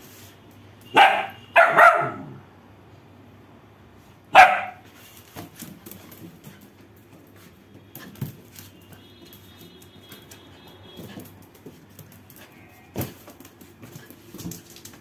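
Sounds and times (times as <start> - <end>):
paws on tiled floor: 0.0 - 2.4, 4.0 - 15.0
dog barking: 0.9 - 2.4, 4.3 - 4.8.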